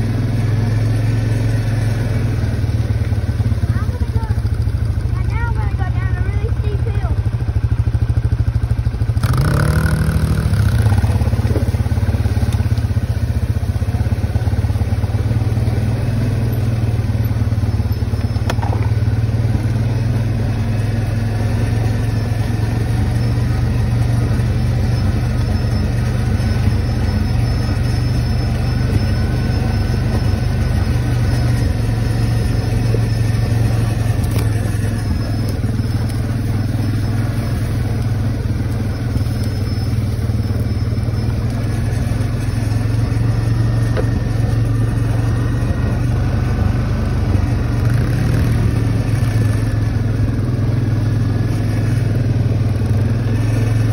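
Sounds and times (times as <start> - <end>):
quad bike engine running: 0.0 - 53.9.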